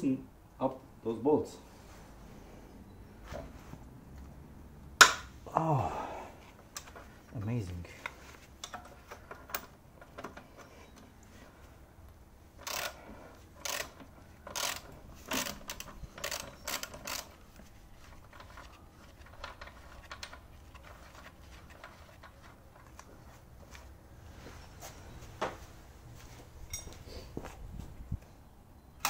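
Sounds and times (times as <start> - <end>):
socket ratchet clicking: 12.6 - 13.0, 13.6 - 17.3
tools tapping on metal: 26.6 - 27.0.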